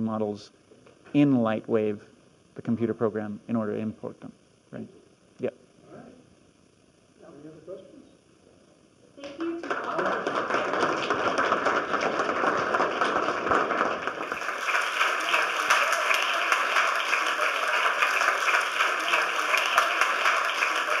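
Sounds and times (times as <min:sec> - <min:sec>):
audience applauding: 0:09.2 - 0:21.0.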